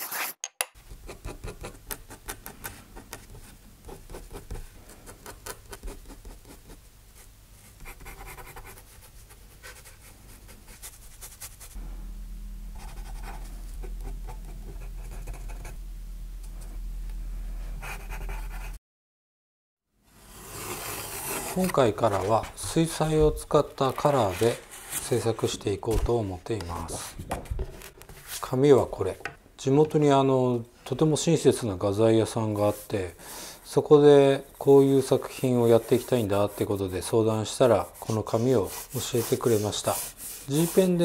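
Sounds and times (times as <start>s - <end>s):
pen nib scratching paper: 0.9s - 6.8s, 12.8s - 15.8s, 17.8s - 18.8s, 38.0s - 41.0s
brush strokes rubbing on paper: 5.9s - 11.8s, 12.7s - 15.8s, 17.6s - 18.8s, 34.1s - 41.0s
low steady hum: 10.2s - 18.8s.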